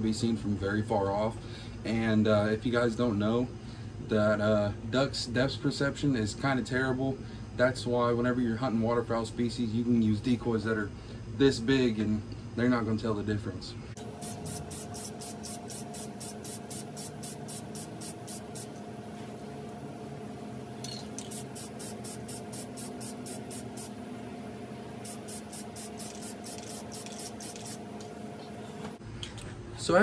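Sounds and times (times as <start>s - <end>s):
aerosol can spraying: 14.0s - 18.8s, 21.1s - 24.0s, 25.0s - 27.9s.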